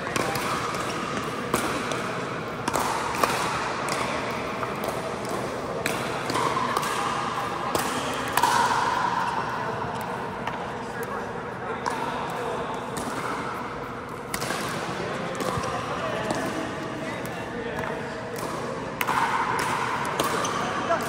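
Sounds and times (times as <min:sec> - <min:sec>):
paddles hitting plastic ball: 0:00.0 - 0:11.2.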